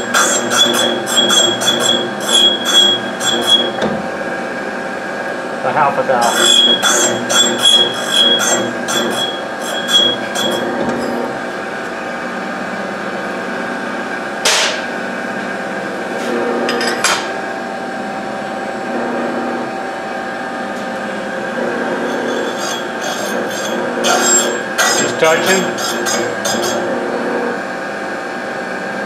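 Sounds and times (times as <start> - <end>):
metal grinding strokes with ringing: 0.0 - 3.8, 6.2 - 11.3, 21.6 - 26.9
grinder motor running: 0.0 - 4.4, 5.7 - 12.0, 20.4 - 27.6.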